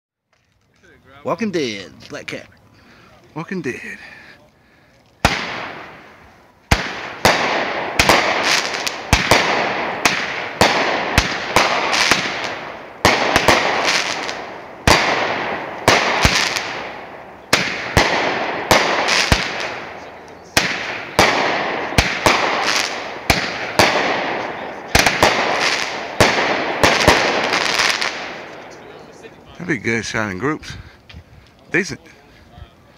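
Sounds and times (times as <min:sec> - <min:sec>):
firework crackle: 0:04.9 - 0:29.6
firework bangs: 0:05.2 - 0:29.5.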